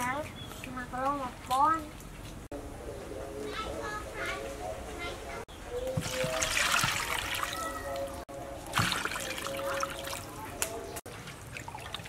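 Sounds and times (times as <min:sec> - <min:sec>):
water pouring into metal bowl: 0:06.0 - 0:07.8
water splashing over meat: 0:06.0 - 0:10.4.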